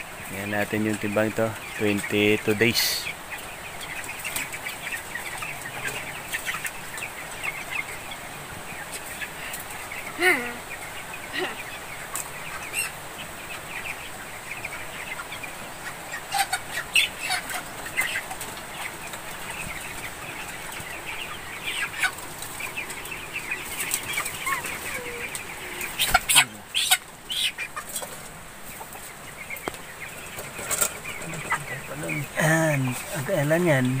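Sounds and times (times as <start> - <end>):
chickens cheeping: 0.0 - 34.0
wings flapping: 23.7 - 28.3.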